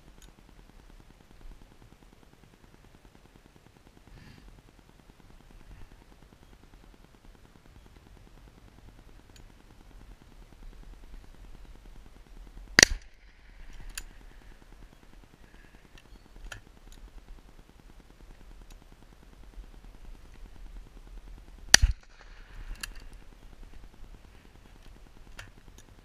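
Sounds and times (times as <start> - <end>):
faint sharp cracks: 12.7 - 17.4, 21.4 - 26.0
loud shotgun shot: 12.8 - 13.2, 21.7 - 22.2.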